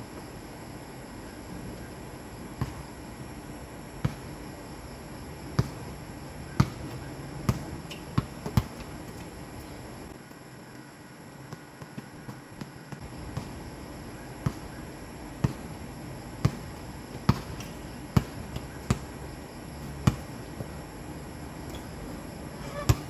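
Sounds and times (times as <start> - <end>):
basketball bouncing on hard court: 6.6 - 9.3, 16.4 - 19.1, 20.0 - 20.8.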